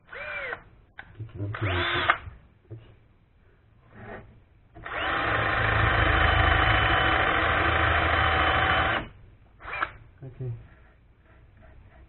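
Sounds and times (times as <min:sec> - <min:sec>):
cordless drill drilling into wood: 0:00.1 - 0:00.6, 0:01.6 - 0:02.2, 0:04.8 - 0:10.0.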